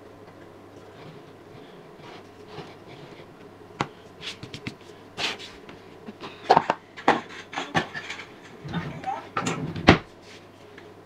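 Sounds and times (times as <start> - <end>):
kitchen utensils knocking and clicking: 6.5 - 9.6.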